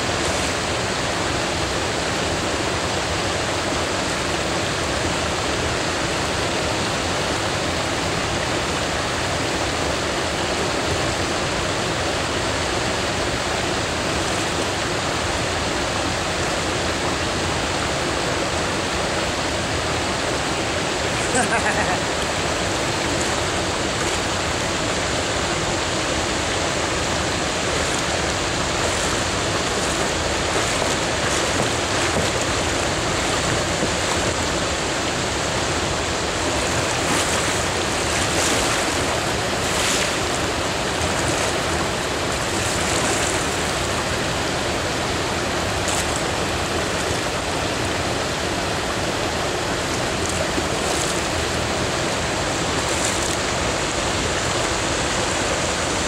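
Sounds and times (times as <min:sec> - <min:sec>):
river current rushing: 0:00.0 - 0:56.0
kayak paddle splashes: 0:20.0 - 0:56.0.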